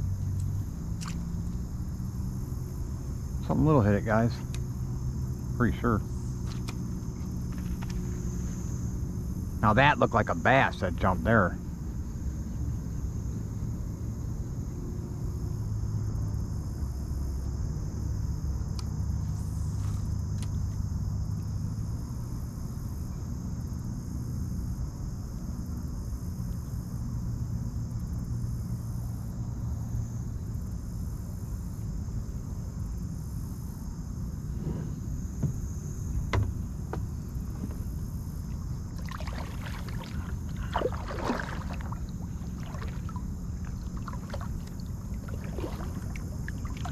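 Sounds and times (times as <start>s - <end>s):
insects buzzing: 0.0s - 46.9s
steady low hum: 0.0s - 46.9s
light knocks: 35.4s - 35.6s, 36.2s - 37.9s.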